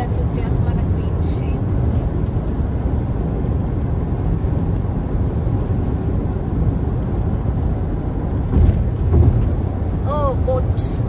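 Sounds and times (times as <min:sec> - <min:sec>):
car road and engine rumble: 0:00.0 - 0:11.0
brief knock: 0:08.5 - 0:09.6.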